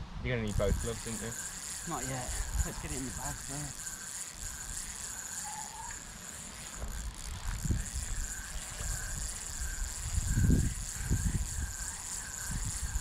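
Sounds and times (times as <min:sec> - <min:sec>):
wind rumbling on microphone: 0:00.0 - 0:01.4, 0:06.8 - 0:13.0
steady high hiss: 0:00.5 - 0:13.0
faint high squeaks: 0:04.8 - 0:06.9.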